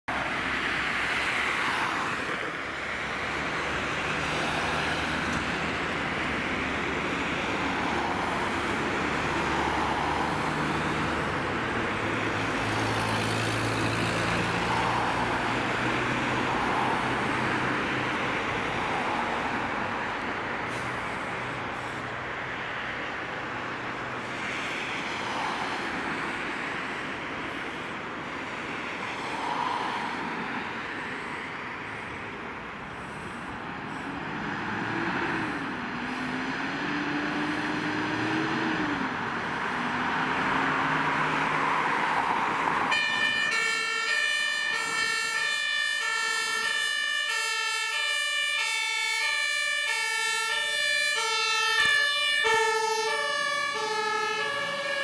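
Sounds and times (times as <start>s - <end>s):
truck engine and road noise: 0.0s - 55.0s
two-tone siren horn: 42.9s - 55.0s.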